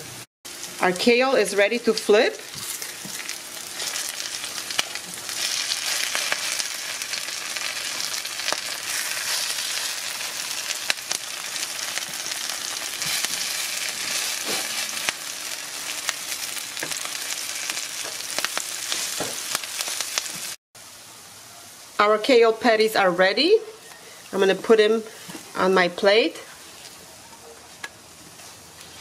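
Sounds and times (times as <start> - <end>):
patties sizzling in a frying pan: 0.5 - 21.0.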